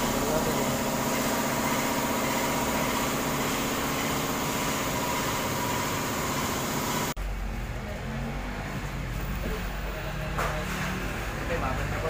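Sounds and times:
motorcycle engine running: 0:00.0 - 0:07.7.

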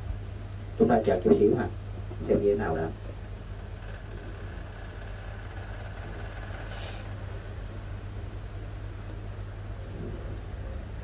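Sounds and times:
steady low hum: 0:00.0 - 0:11.0
short high-pitched hiss: 0:06.6 - 0:07.1.

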